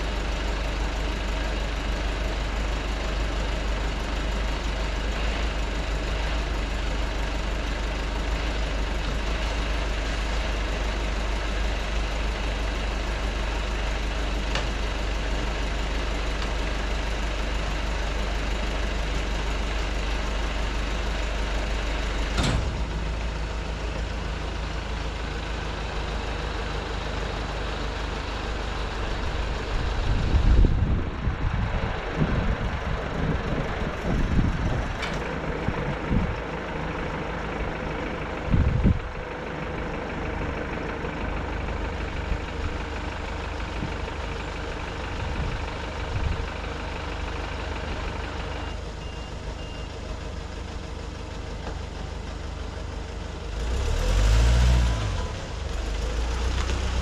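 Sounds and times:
diesel truck engine idling: 0:00.0 - 0:57.0.

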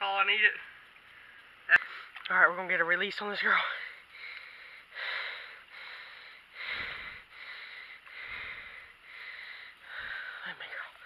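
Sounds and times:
person breathing heavily: 0:03.5 - 0:11.0.

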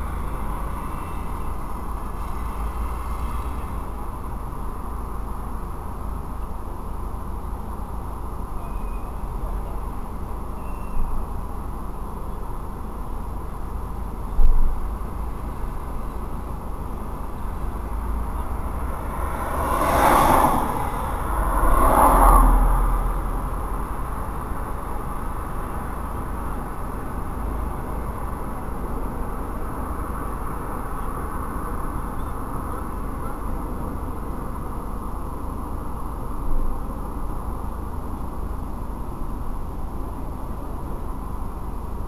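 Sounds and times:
vehicles passing: 0:00.0 - 0:10.6, 0:11.2 - 0:35.6
background hum: 0:00.0 - 0:35.2.

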